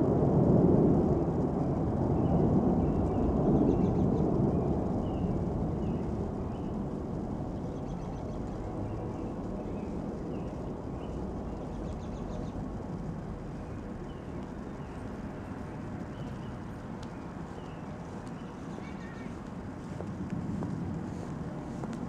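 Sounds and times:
low rumble: 0.0 - 22.0
small bird chirping: 7.6 - 12.6, 13.6 - 20.0.

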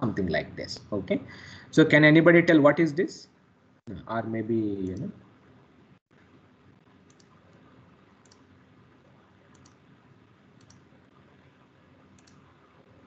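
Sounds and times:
room hiss: 0.0 - 13.0
computer mouse clicks: 7.0 - 8.5, 9.5 - 9.9, 10.6 - 11.2, 12.1 - 13.0.

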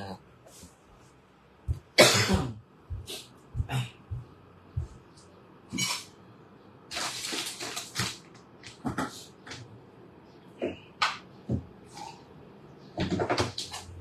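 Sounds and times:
man coughing: 2.0 - 2.6.

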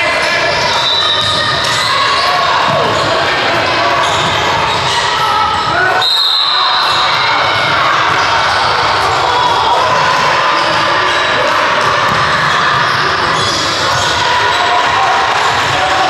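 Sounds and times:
indistinct voices: 0.0 - 16.0
basketball bouncing on court: 1.1 - 5.7, 6.8 - 11.2, 11.8 - 14.1, 15.4 - 16.0.

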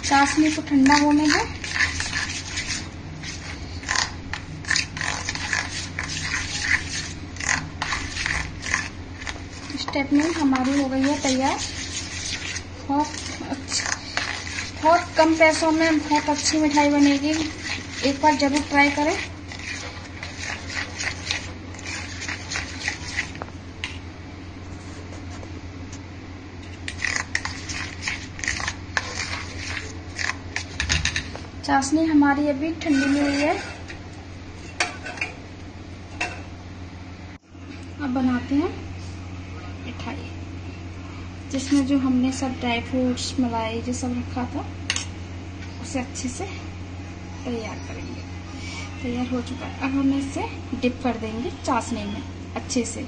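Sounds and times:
fingers scraping metal bowl: 0.0 - 23.4, 26.8 - 31.3, 32.8 - 34.0
hands mixing food in steel bowl: 0.0 - 24.1, 26.6 - 35.5, 41.4 - 46.4
steady low hum: 0.0 - 53.0.

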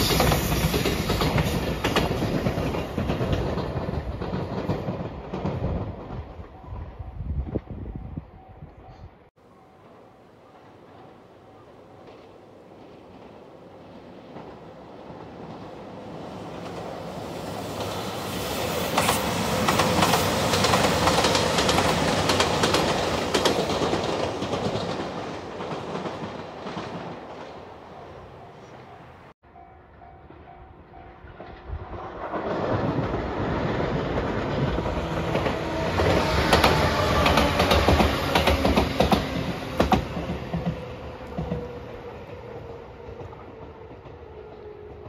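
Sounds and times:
train wheels clattering over rail joints: 0.0 - 6.4, 14.2 - 28.9, 32.4 - 41.8
diesel train passing: 0.0 - 45.0.

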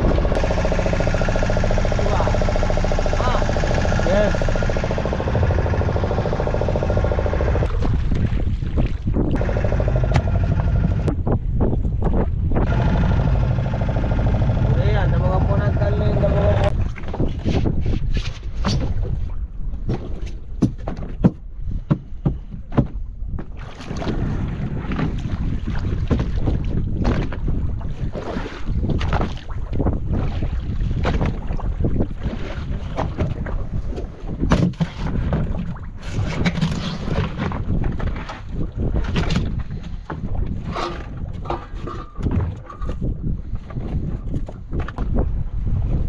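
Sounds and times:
boat engine rumbling: 0.0 - 17.4, 24.1 - 46.0
sharp knocks on boat: 19.8 - 24.2.

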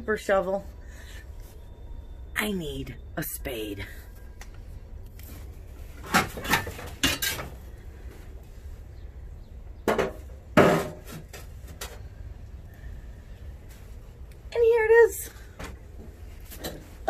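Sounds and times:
metallic clanks of garage tools: 6.1 - 7.6.

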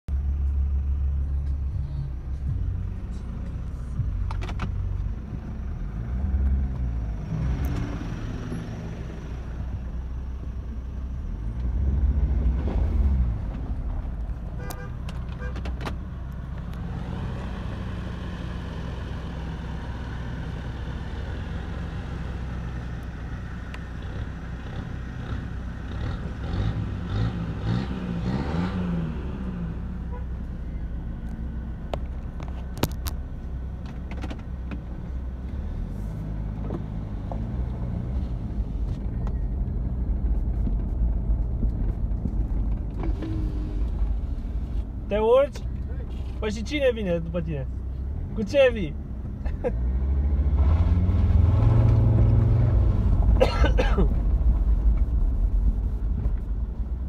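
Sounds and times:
deep rumble: 0.1 - 18.4, 19.4 - 46.4, 49.0 - 57.0
car engine accelerating: 0.2 - 57.0.

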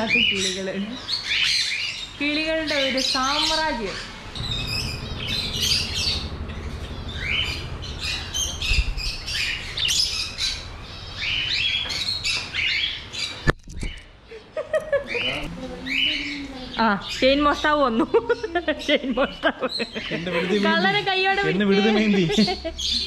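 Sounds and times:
birds squawking and chirping: 0.0 - 23.0
low rumble: 3.9 - 11.6.

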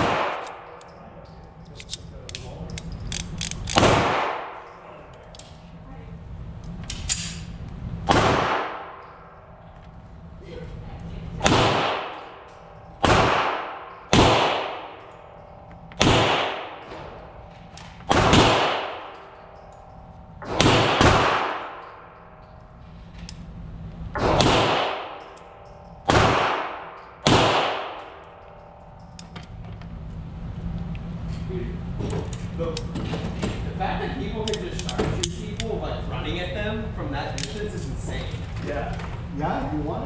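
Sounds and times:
gunshots echoing indoors: 0.0 - 1.5, 3.7 - 5.1, 8.0 - 9.6, 11.4 - 22.8, 24.1 - 29.1.

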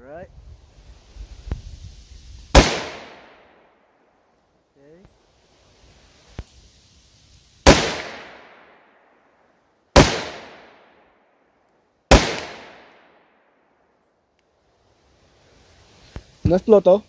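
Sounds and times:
rifle shots with echo: 2.5 - 3.6, 7.6 - 8.9, 10.0 - 11.0, 12.1 - 13.3.

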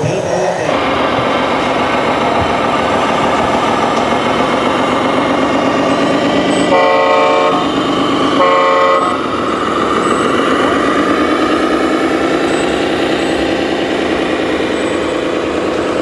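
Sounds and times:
diesel engine running: 0.0 - 16.0
truck horn blasts: 6.6 - 13.6.

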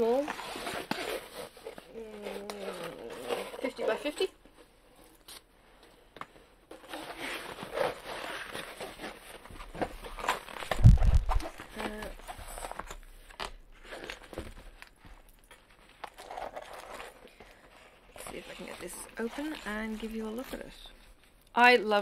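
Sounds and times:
canvas rustling and crinkling: 6.8 - 13.0.

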